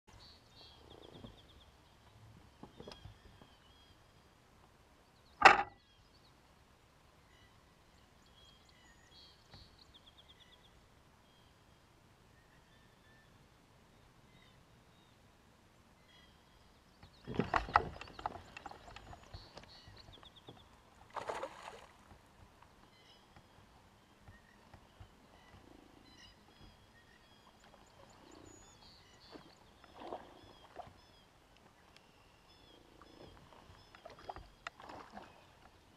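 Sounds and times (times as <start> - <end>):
light water noise: 0.1 - 35.9
knocks in a kayak: 5.4 - 5.8.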